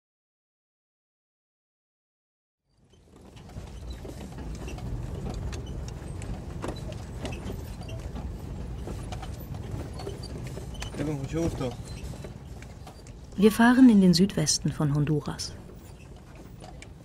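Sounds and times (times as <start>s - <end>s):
rattles and knocks: 2.8s - 13.5s, 15.5s - 17.0s
vehicle rumbling on dirt road: 2.8s - 13.9s.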